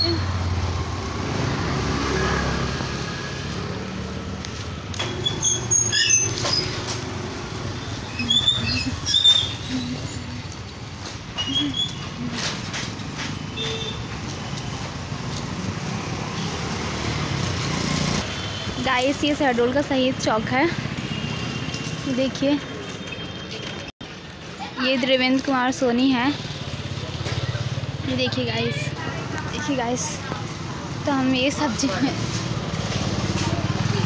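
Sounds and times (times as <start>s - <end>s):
motorcycle and truck engines passing: 0.0s - 34.0s.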